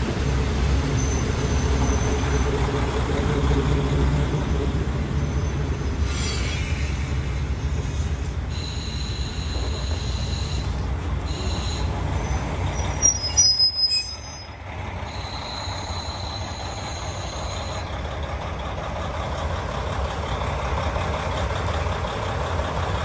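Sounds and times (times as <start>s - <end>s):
railcar braking: 0.8s - 3.0s, 4.7s - 18.3s
high brake squeal: 1.0s - 2.5s, 5.2s - 18.0s
diesel engine idling: 14.5s - 23.0s.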